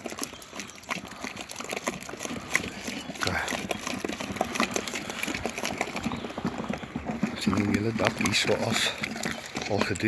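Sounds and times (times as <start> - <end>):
cement slurry stirring: 0.0 - 10.0
stick scraping bucket: 0.0 - 10.0.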